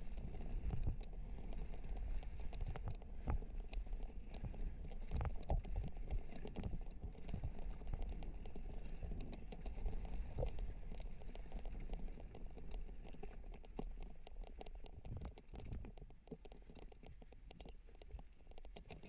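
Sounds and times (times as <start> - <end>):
wind rumble on microphone: 0.0 - 17.2.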